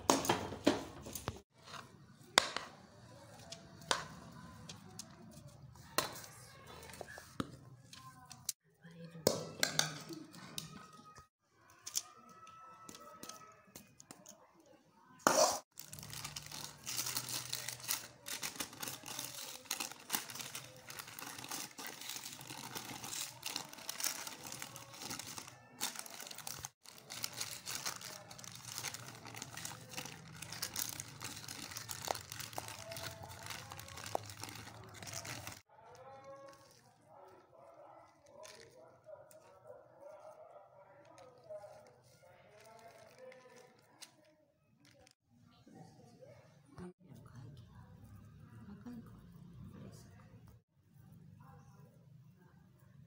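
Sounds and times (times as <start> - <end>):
paper crinkling and rustling: 15.7 - 37.0, 41.4 - 45.2.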